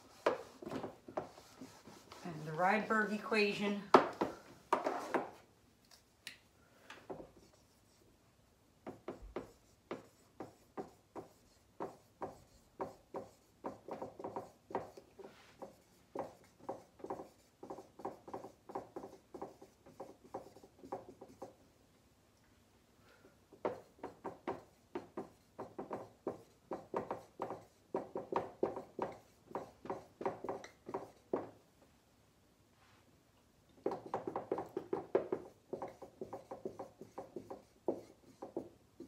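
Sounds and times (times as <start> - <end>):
pen strokes writing: 8.9 - 21.6, 23.7 - 31.5, 33.9 - 38.7.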